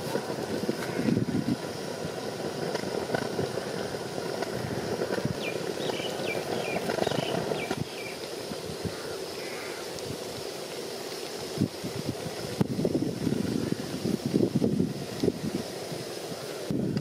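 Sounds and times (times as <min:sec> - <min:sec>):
wind buffeting microphone: 0:00.0 - 0:10.7, 0:11.4 - 0:17.0
small bird chirping: 0:05.4 - 0:08.2.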